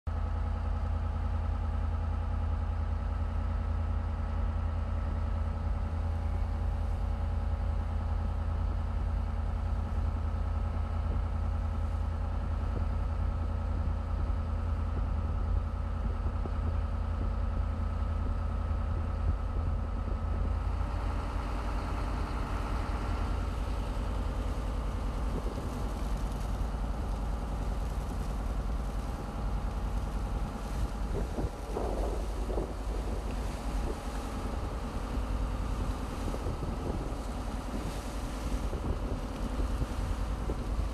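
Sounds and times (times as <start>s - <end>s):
boat engine rumbling: 0.1s - 40.9s
water rushing along hull: 0.2s - 40.9s
wind and spray hissing: 16.0s - 40.9s.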